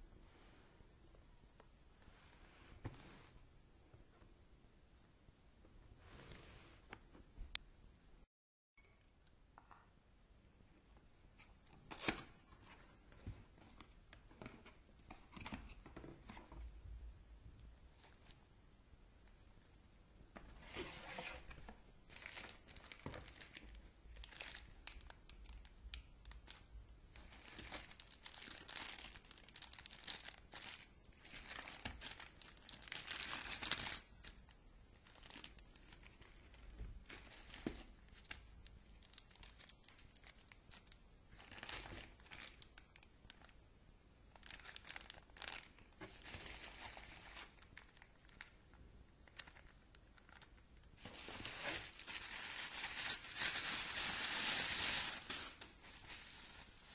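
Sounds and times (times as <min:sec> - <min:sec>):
plastic bags crinkling: 0:21.0 - 0:34.4, 0:35.0 - 0:43.5, 0:44.3 - 0:48.6, 0:49.3 - 0:56.9.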